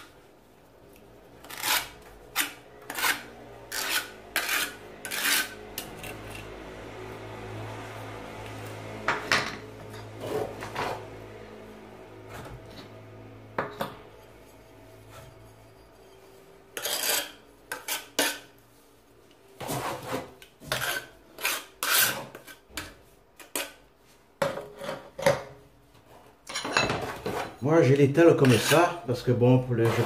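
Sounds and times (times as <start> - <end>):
mortar scraping on tiles: 1.3 - 6.6, 14.2 - 18.6, 19.6 - 23.8, 28.4 - 29.0, 29.7 - 30.0.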